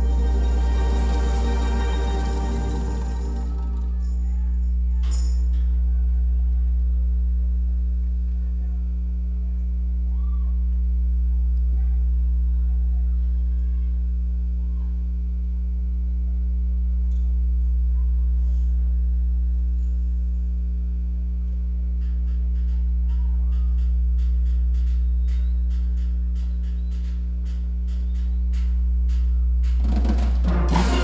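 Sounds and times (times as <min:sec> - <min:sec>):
faint crowd voices: 0:00.0 - 0:07.3
loud electrical hum: 0:00.0 - 0:31.0.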